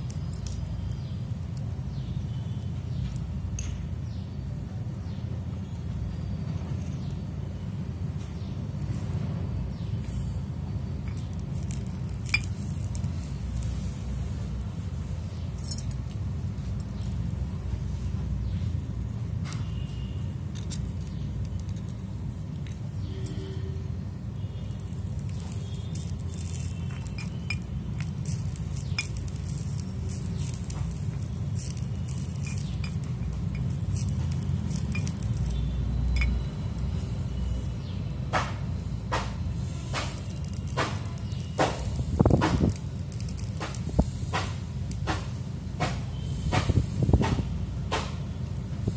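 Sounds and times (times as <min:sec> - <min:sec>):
cooking utensils clinking: 0:25.3 - 0:36.6.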